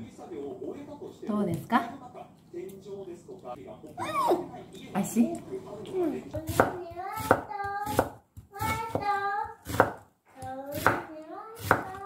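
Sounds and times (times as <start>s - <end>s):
child vocalizing: 4.0s - 4.4s
knife chopping on wooden board: 6.4s - 10.0s, 10.7s - 12.0s.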